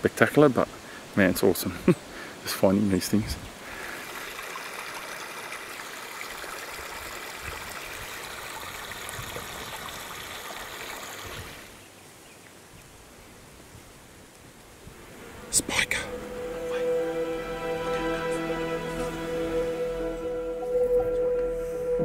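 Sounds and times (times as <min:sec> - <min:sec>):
creek trickling over stones: 0:00.1 - 0:12.8.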